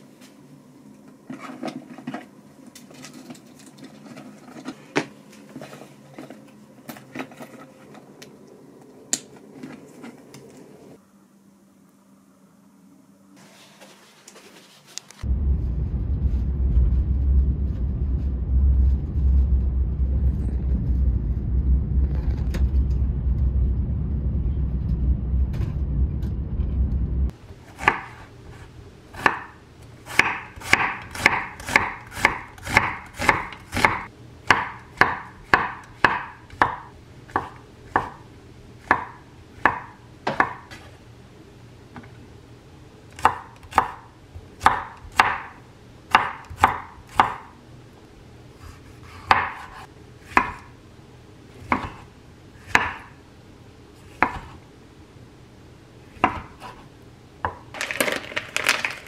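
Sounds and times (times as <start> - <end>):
low train rumble: 15.2 - 27.4
knife chopping on wooden board: 29.2 - 38.2, 46.1 - 47.5, 49.2 - 50.7, 51.6 - 52.0, 52.7 - 53.1, 56.2 - 56.8.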